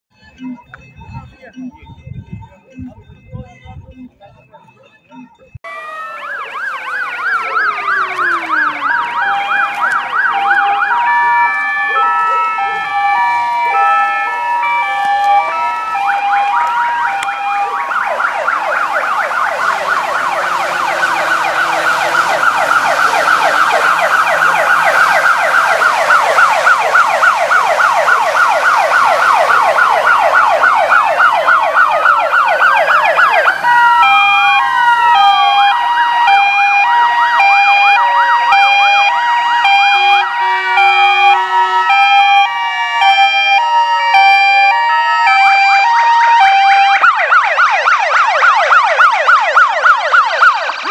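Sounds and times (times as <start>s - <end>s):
siren fast yelp: 5.6s - 50.9s
siren rising and falling wail: 5.6s - 50.9s
two-tone hi-lo horn: 40.3s - 42.0s.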